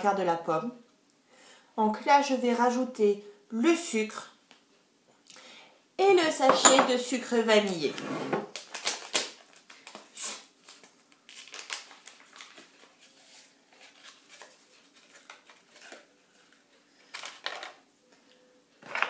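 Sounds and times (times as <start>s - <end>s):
paper sachet crinkling: 8.5s - 17.4s.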